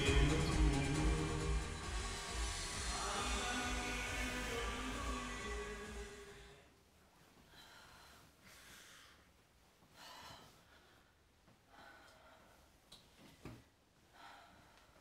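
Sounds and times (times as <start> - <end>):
music: 0.0 - 6.6
soft breaths and sighs: 6.0 - 15.0.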